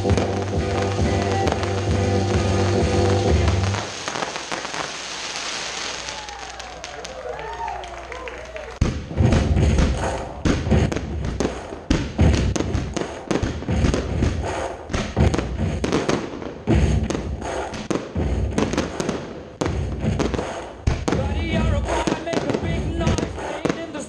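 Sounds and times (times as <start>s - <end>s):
firework bursts: 0.0s - 24.0s
firework crackle: 0.0s - 24.0s
firework launch thumps: 8.8s - 23.8s.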